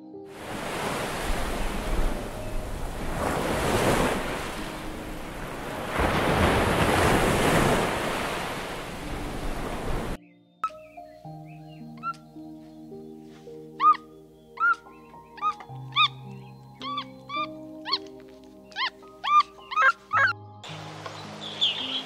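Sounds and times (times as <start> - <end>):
surf breaking on sandy shore: 0.3 - 10.2.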